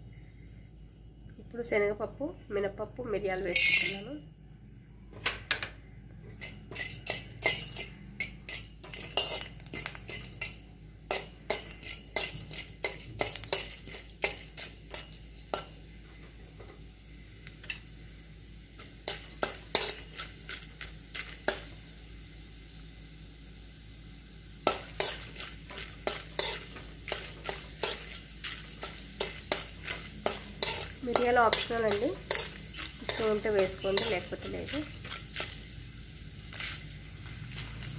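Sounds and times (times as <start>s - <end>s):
steel spoon scraping pan: 3.4s - 4.0s, 6.4s - 15.7s, 19.1s - 21.6s, 24.6s - 35.7s.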